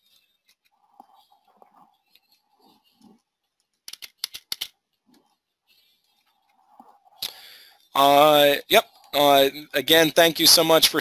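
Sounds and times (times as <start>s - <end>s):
mouse or keyboard clicks: 3.8s - 4.8s
short breath: 7.2s - 7.8s.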